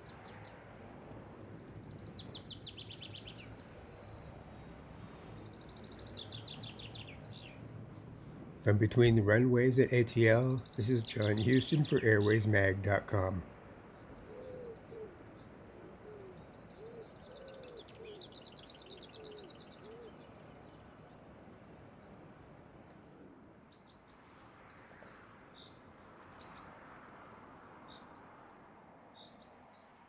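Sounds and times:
faint steady background: 0.0 - 17.2.

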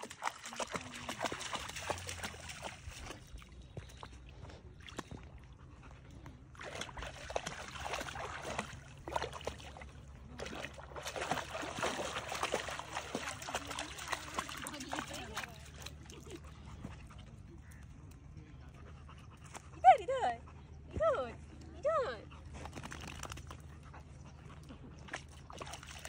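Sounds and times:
dog splashing through water: 0.0 - 4.1, 6.5 - 16.5, 22.6 - 23.7, 25.0 - 26.0.

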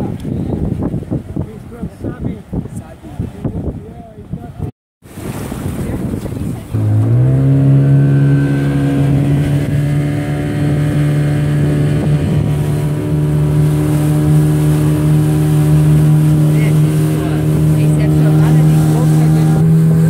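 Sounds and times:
water and wind rushing: 0.0 - 20.0
outboard motor revving: 5.1 - 20.0.

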